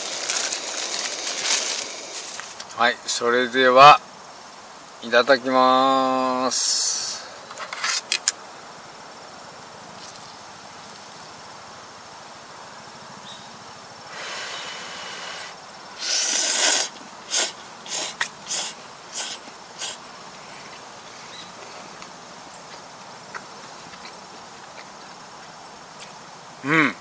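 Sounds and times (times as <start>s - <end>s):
person slurping noodles: 16.0s - 20.0s.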